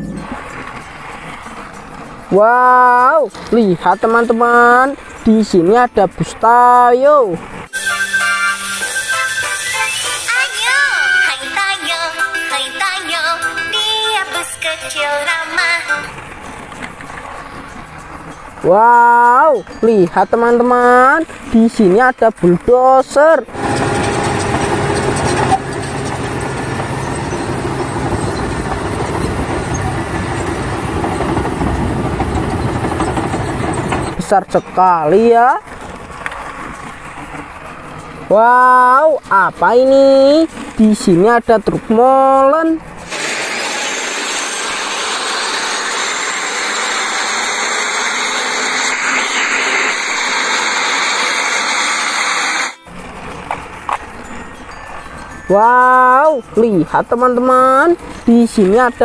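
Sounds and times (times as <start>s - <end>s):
trucks and traffic road noise: 0.0s - 59.0s
bulldozer diesel engine running: 23.4s - 38.3s, 42.8s - 55.4s.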